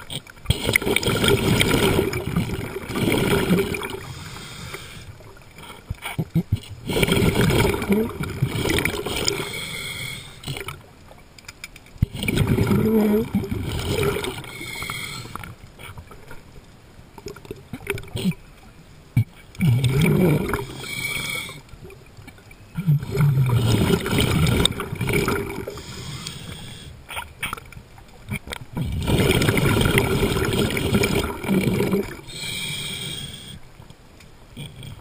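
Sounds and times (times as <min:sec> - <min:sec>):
exhaled breath bubbling underwater: 0:00.0 - 0:10.8, 0:12.0 - 0:16.0, 0:19.2 - 0:21.7, 0:22.8 - 0:27.6, 0:28.3 - 0:33.6.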